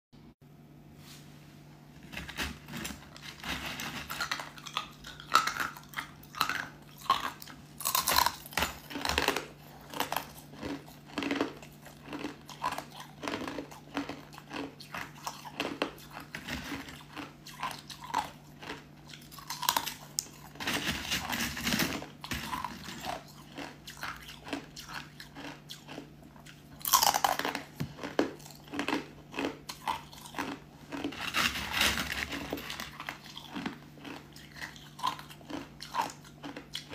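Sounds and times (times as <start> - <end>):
ice crunching: 2.1 - 5.6, 19.5 - 23.7, 26.8 - 36.9.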